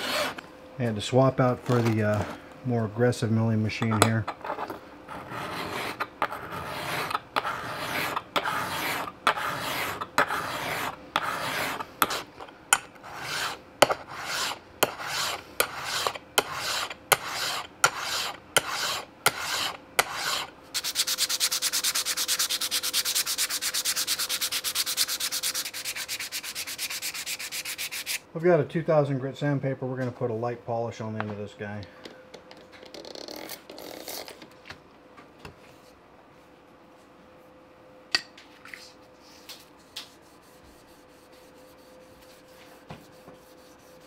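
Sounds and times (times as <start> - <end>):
metal rasping on a file: 0.0 - 0.4, 4.5 - 12.3, 13.0 - 28.2, 40.2 - 44.0
rubbing on sandpaper: 13.1 - 28.2, 40.0 - 44.0.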